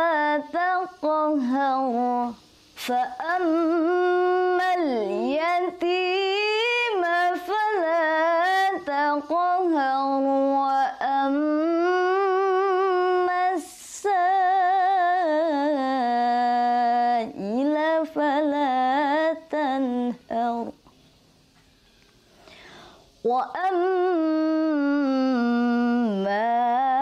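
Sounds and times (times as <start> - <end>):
woman chanting melodically: 0.0 - 20.8, 23.2 - 27.0
breath intake: 22.4 - 23.2.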